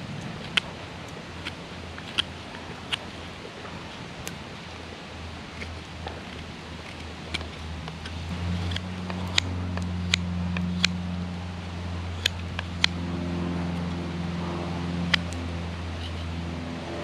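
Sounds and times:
steady low hum: 0:00.0 - 0:17.0
knife whittling wood clicks: 0:00.2 - 0:03.1, 0:05.6 - 0:11.0, 0:12.1 - 0:13.0, 0:15.1 - 0:16.3.

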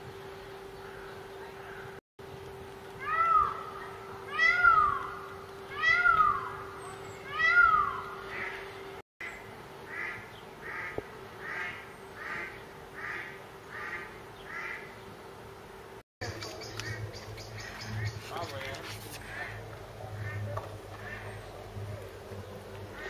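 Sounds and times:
faint steady hum: 0:00.0 - 0:23.0
quieter higher animal calls: 0:03.0 - 0:14.9
animal meow-like calls: 0:04.3 - 0:06.6, 0:07.3 - 0:08.6.

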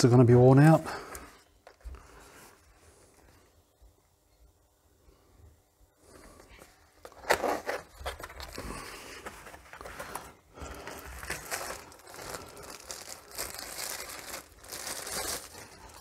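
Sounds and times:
plastic wrap crinkling: 0:07.0 - 0:16.0.

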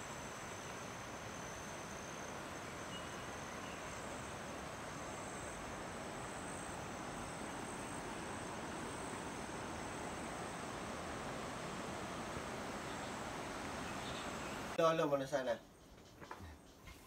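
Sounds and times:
insects calling: 0:00.0 - 0:17.0
outdoor hiss: 0:00.0 - 0:17.0.

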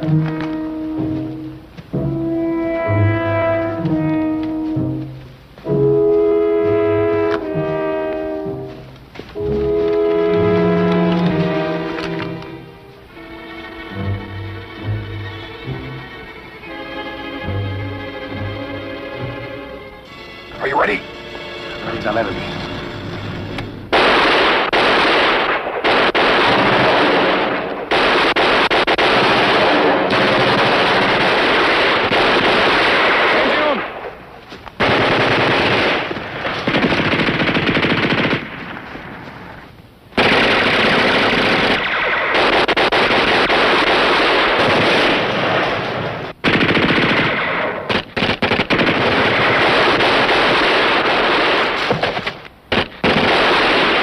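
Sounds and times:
automatic gunfire bursts: 0:23.9 - 0:34.0, 0:34.8 - 0:38.9, 0:40.2 - 0:45.8, 0:46.4 - 0:54.0.

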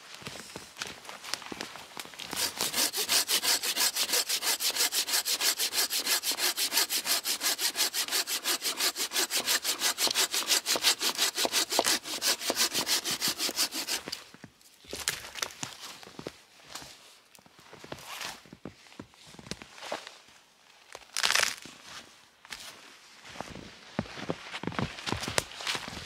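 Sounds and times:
hand saw cutting wood: 0:02.3 - 0:14.2.

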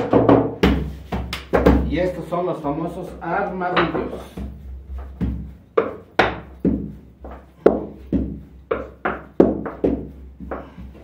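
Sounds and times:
dough thunking on a board: 0:00.0 - 0:01.9.

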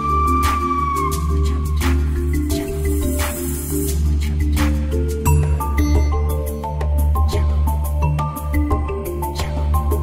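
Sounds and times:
background music with bass: 0:00.0 - 0:10.0
light percussion: 0:00.0 - 0:10.0.

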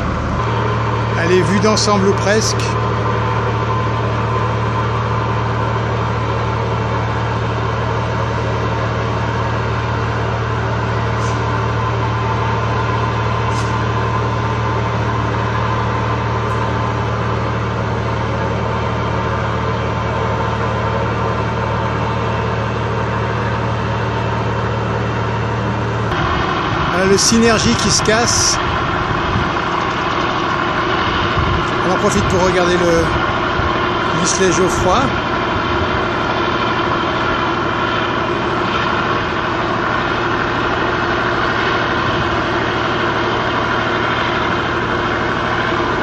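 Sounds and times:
large engine humming: 0:00.0 - 0:46.0.

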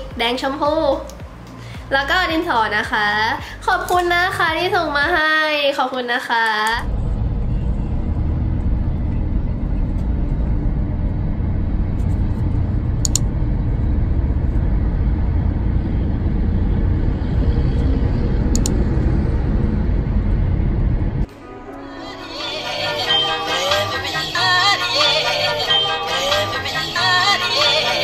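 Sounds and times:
car road noise rumble: 0:06.8 - 0:21.3.

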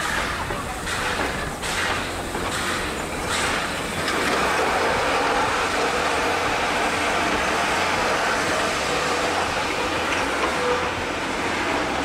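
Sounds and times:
train carriages rolling rumble: 0:00.0 - 0:12.0
train wheels knocking on rail joints: 0:00.0 - 0:12.0.

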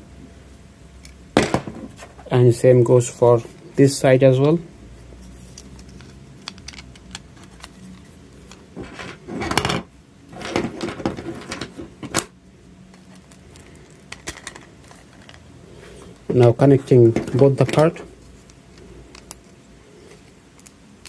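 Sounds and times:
plastic parts clicking: 0:05.6 - 0:09.7, 0:12.9 - 0:15.4
plastic parts clattering: 0:05.6 - 0:12.3, 0:12.9 - 0:15.4, 0:16.9 - 0:18.1.

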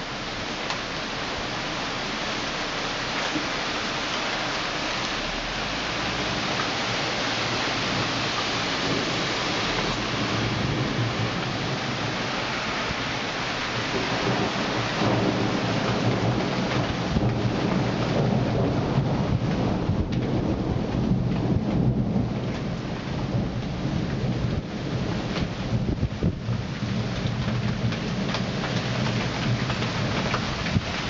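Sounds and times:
rain falling: 0:00.0 - 0:31.0
thunder rumbling: 0:03.6 - 0:31.0.

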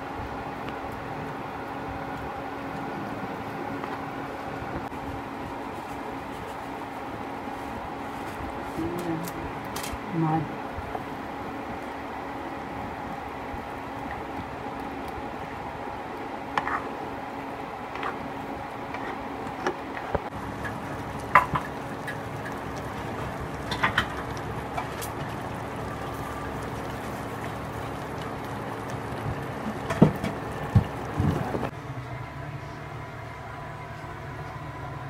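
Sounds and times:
steady low hum: 0:00.0 - 0:35.0
stew bubbling with wet pops: 0:20.2 - 0:31.7.

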